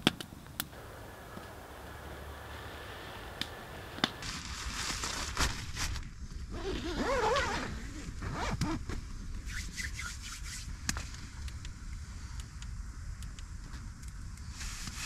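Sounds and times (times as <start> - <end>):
zipper being zipped: 6.5 - 8.8.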